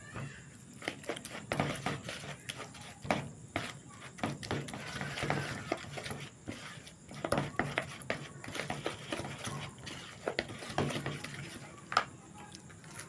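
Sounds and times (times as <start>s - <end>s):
spatula scraping metal bowl: 0.8s - 12.0s
spatula knocking against bowl: 3.1s - 12.1s.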